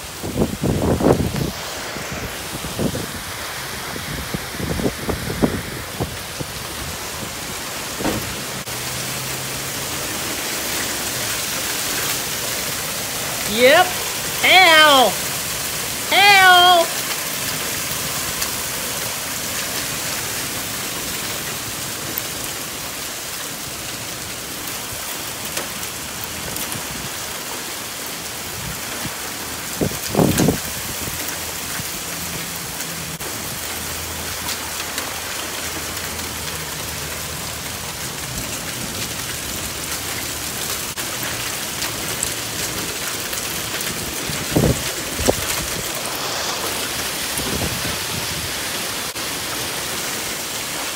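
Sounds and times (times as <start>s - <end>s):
heavy rain pouring: 0.0s - 50.9s
loud thumps: 8.0s - 8.6s.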